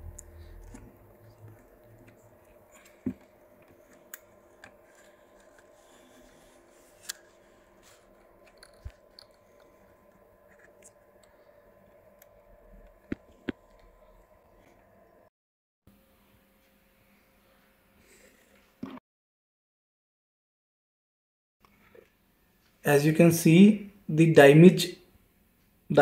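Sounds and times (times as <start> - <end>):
faint hum: 0.0 - 15.3.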